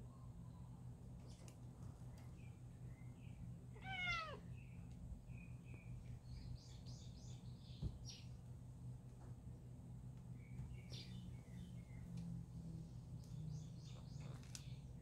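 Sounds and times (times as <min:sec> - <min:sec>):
cat meowing: 0:03.8 - 0:04.5.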